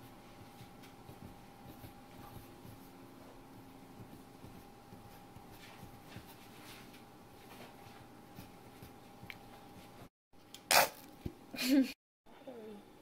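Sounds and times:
fingertips rubbing dough on steel: 0.0 - 10.0.

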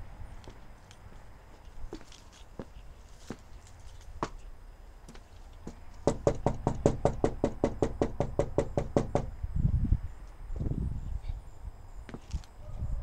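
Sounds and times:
rapid knocking on a door: 6.0 - 9.3.

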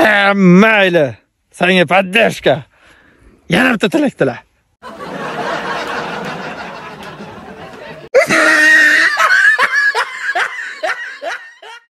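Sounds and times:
burst of laughter: 4.8 - 11.9.

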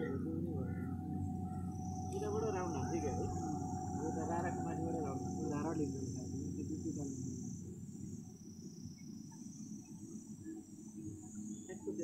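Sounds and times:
low rumble: 0.0 - 8.3
insects chirring: 0.0 - 12.0.

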